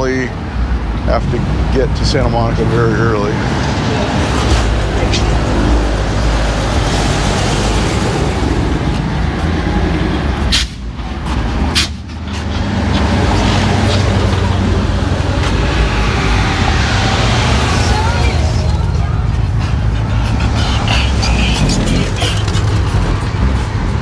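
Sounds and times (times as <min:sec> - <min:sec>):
cars passing with engines droning: 0:00.0 - 0:24.0.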